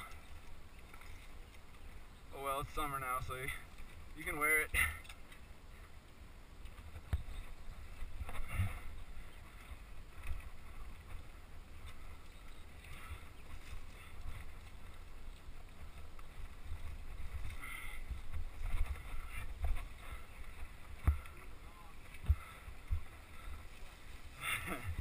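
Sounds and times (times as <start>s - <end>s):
bike rolling rumble: 6.7s - 25.0s.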